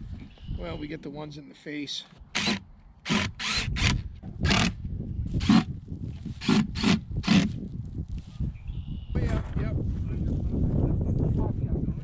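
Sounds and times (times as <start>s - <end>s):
tool scraping wood: 2.4s - 4.8s.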